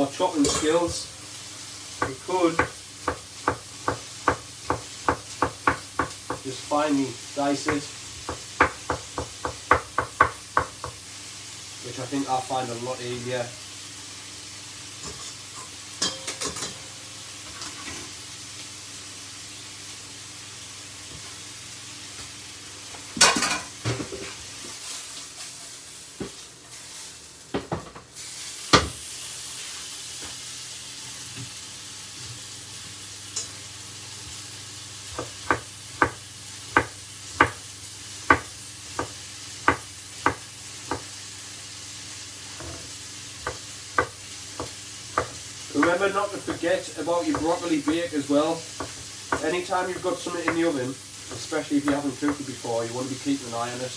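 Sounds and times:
utensils clattering against pots: 0.0 - 1.0, 15.0 - 16.9
steak sizzling in a pan: 0.0 - 53.9
knife chopping on wooden board: 2.0 - 6.4, 7.7 - 11.0, 35.2 - 37.6, 38.3 - 41.1, 43.4 - 46.6, 47.3 - 48.0
saucepan being stirred: 42.7 - 52.6.

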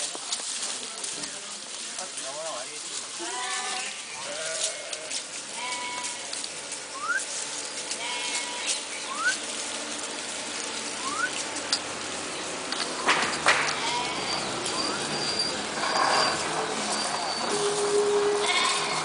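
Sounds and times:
light clicks and rustles: 0.0 - 15.0
goats and sheep bleating: 3.0 - 11.7, 13.5 - 19.0
short rising whistle: 11.0 - 11.3.

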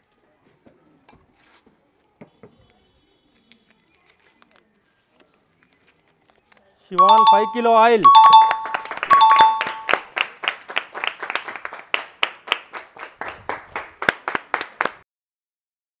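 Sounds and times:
two-note ding-dong chime: 7.0 - 10.0
hands clapping: 8.1 - 15.0.

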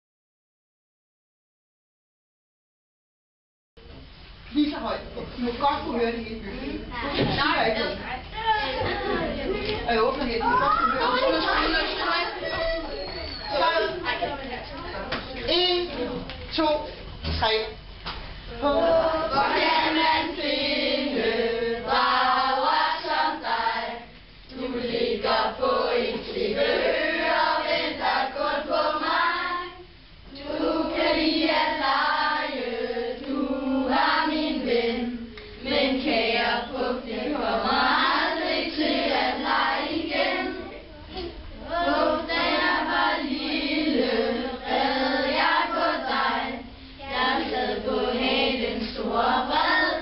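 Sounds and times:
children's choir singing: 18.5 - 40.9, 41.6 - 50.0.

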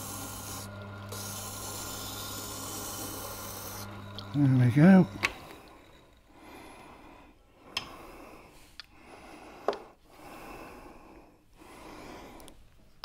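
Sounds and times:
blade rasping on wet grindstone: 0.0 - 6.4.

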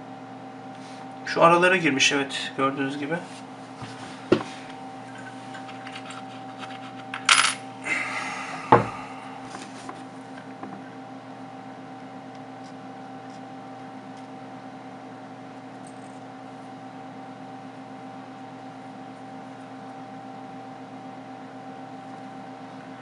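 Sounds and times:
steady background hum: 0.0 - 23.0.

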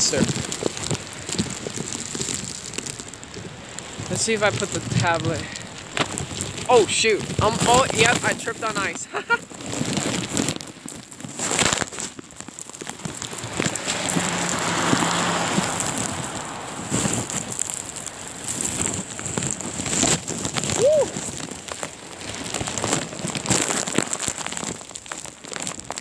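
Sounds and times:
crackling handling noise: 0.0 - 26.0
snow pelting microphone: 0.0 - 26.0
rising and falling tone: 13.3 - 17.8.

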